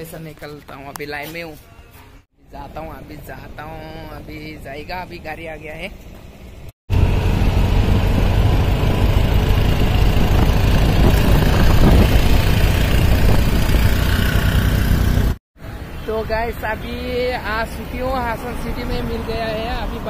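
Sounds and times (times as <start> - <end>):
road and wind noise: 0.1 - 20.0
small engine running: 6.9 - 15.4.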